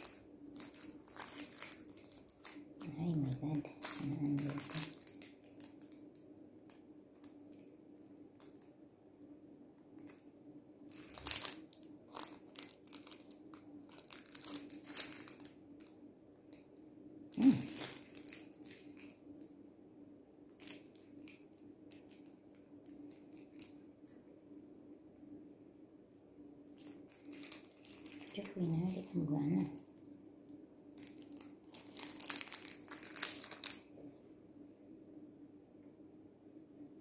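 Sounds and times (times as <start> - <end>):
plastic crinkling: 0.0 - 8.7, 10.0 - 19.5, 20.5 - 24.4, 26.7 - 30.2, 30.9 - 34.0
faint steady hum: 0.0 - 37.0.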